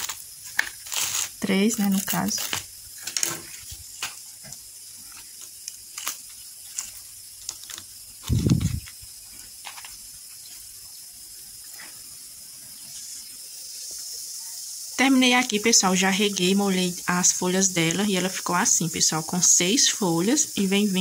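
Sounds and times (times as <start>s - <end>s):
leaves rustling and snapping: 0.0s - 10.7s
steady hiss: 0.0s - 21.0s.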